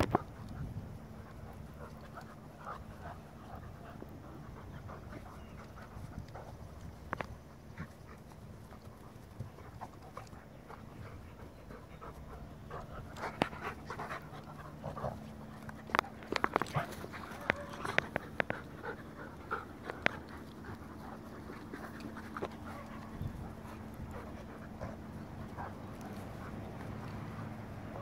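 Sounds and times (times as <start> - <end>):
dogs panting: 0.0 - 28.0
sharp clicks of dogs mouthing: 12.8 - 23.1.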